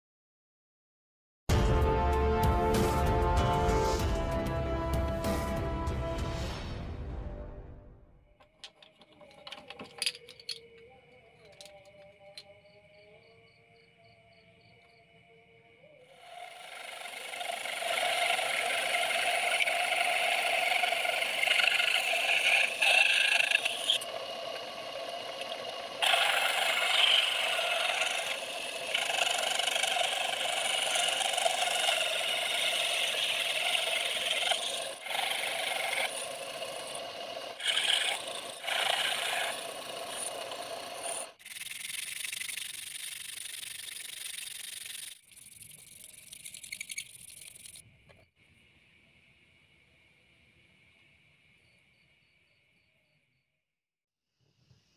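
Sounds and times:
mini saw cutting plastic: 16.2 - 47.8
sandpaper rubbing plastic: 16.3 - 24.1, 25.5 - 47.8.

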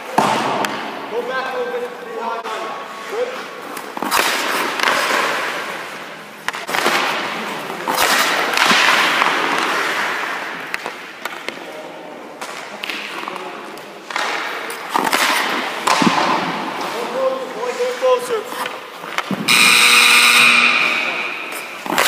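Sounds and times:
pucks shot off sticks: 0.0 - 1.1, 3.7 - 11.7, 12.4 - 19.8, 20.8 - 22.0
skate blades scraping ice: 3.0 - 11.4, 14.1 - 19.4, 20.8 - 22.0.

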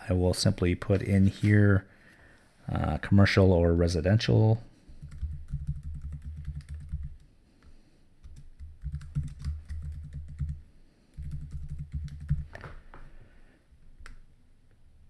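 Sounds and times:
keyboard typing clicks: 5.0 - 7.3.

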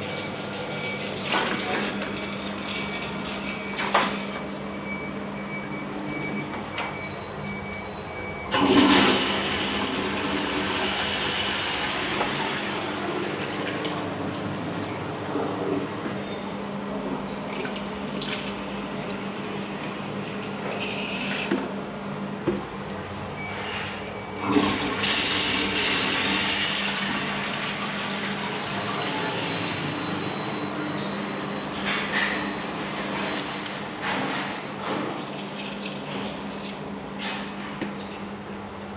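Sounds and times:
toilet flushing: 0.0 - 4.4, 8.5 - 16.2, 16.9 - 21.7, 24.3 - 31.7, 32.3 - 36.9
water rushing into toilet pan: 8.5 - 14.2, 24.4 - 28.7.

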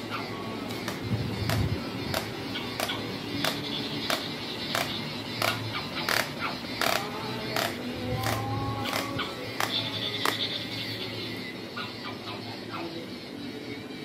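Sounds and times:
toy mechanism clicking: 0.7 - 11.0.

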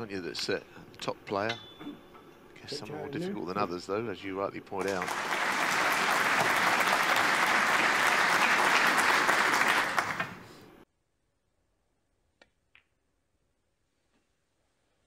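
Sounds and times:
audience applauding: 4.8 - 10.6.

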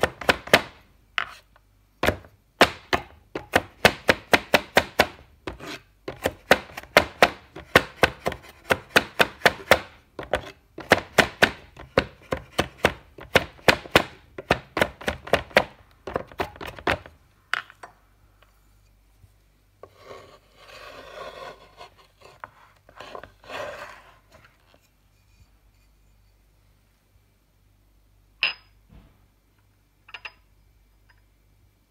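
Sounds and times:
blade scraping across board: 5.5 - 5.9, 19.8 - 25.5.

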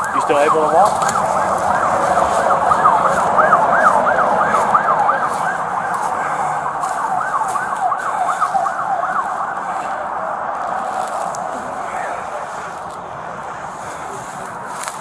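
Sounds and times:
siren yelping: 0.0 - 15.0.

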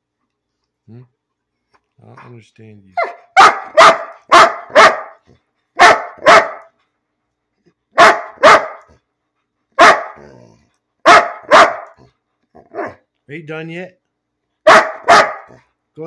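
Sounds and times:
large dog barking loudly: 3.0 - 6.8, 7.9 - 9.0, 9.7 - 13.0, 14.6 - 15.7.

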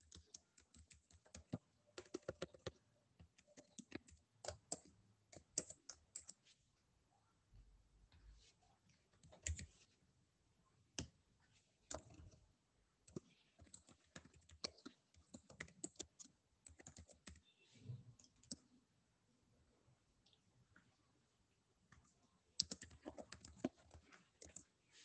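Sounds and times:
computer keyboard typing: 0.0 - 6.4, 9.2 - 9.8, 11.9 - 12.4, 13.0 - 17.5, 18.2 - 18.7, 22.6 - 24.7.

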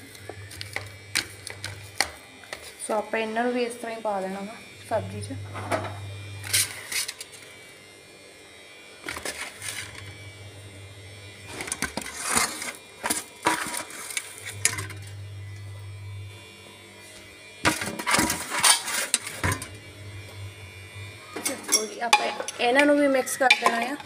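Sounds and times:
low hum: 3.4 - 6.6, 14.4 - 17.6, 19.4 - 23.8
spoon and plate clattering on pot: 21.4 - 22.6, 23.5 - 24.0.

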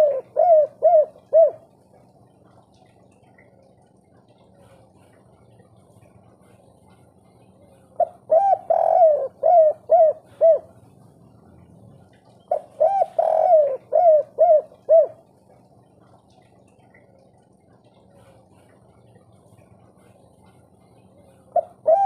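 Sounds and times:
dove cooing: 0.0 - 2.6, 7.9 - 11.4, 12.3 - 16.2, 21.3 - 22.0.

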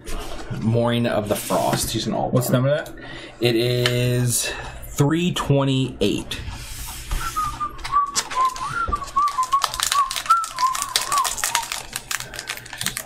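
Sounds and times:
person whistling a tune: 7.2 - 11.8.

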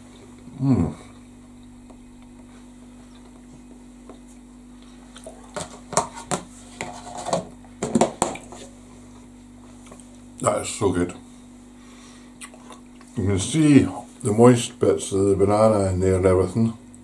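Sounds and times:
low hum: 0.0 - 5.9.

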